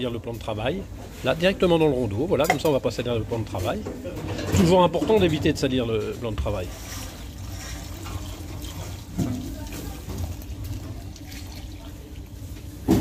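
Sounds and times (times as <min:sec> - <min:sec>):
thick liquid pouring and splashing: 0:06.6 - 0:12.8.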